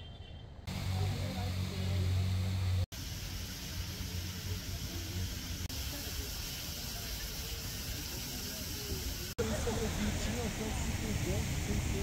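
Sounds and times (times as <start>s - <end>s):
low engine hum: 0.7s - 3.1s
traffic hiss: 0.7s - 12.0s
faint distant voices: 3.8s - 12.0s.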